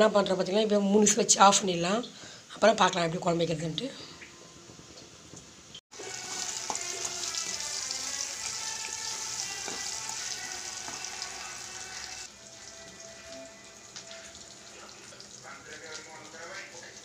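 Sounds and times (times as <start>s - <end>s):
onions sizzling in hot oil: 5.9s - 17.0s.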